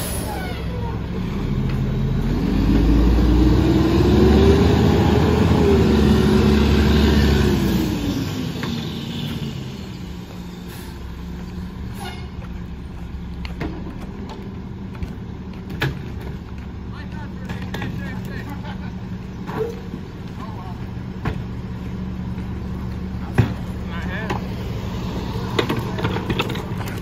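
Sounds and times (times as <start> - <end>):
garbage truck diesel engine revving: 0.0 - 12.0.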